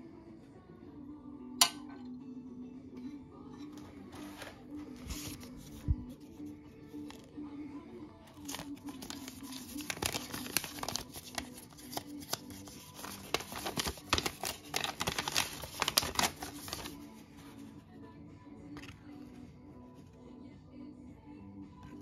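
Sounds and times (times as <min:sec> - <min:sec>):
paper crinkling: 0:04.1 - 0:06.3, 0:08.3 - 0:17.7.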